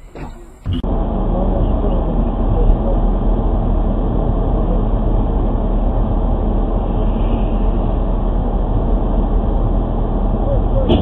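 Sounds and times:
car interior rumble: 0.0s - 11.0s.

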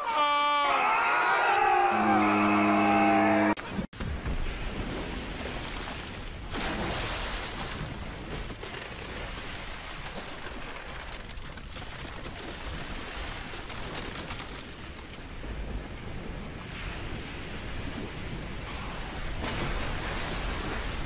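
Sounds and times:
ocean surf breaking: 15.2s - 21.0s.

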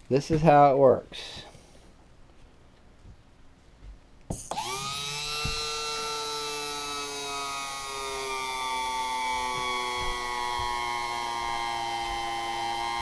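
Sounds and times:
electric pump motor whining: 4.3s - 13.0s.

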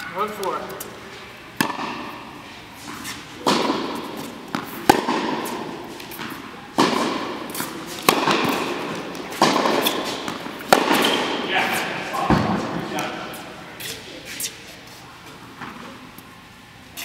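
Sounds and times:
rackets striking tennis ball: 0.0s - 14.6s
tennis ball bouncing: 1.6s - 11.5s.

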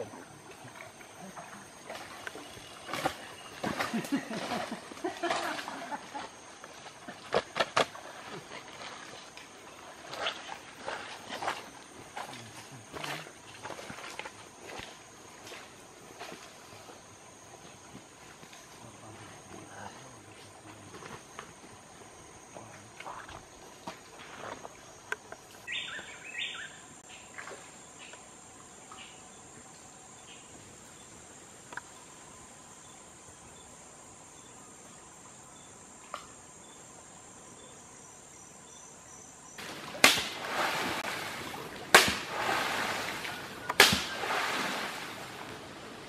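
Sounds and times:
insects buzzing: 0.0s - 46.0s
loud splashes in water: 39.6s - 45.5s.

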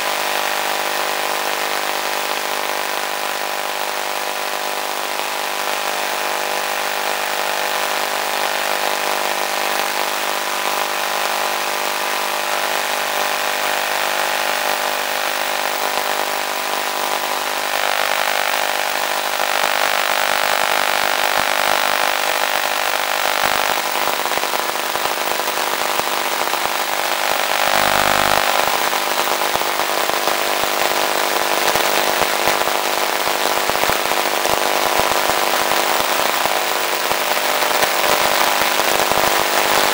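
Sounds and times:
electric motor and propeller whine: 24.8s - 30.0s.

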